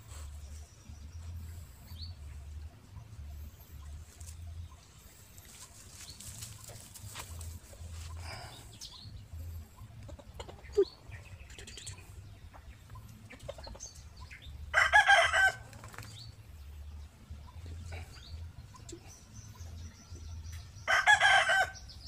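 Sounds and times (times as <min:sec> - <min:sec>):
soft rustling: 0:05.3 - 0:08.3.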